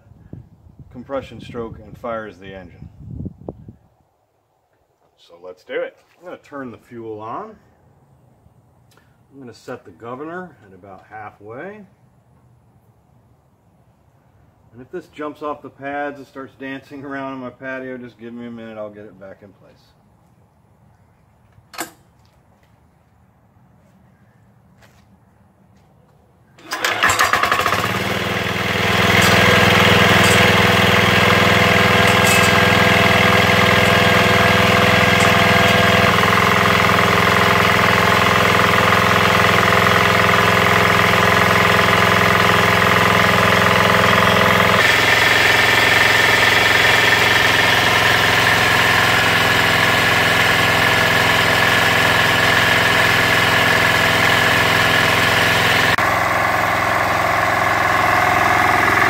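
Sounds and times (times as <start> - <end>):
diesel engine starting and running: 26.4 - 59.0.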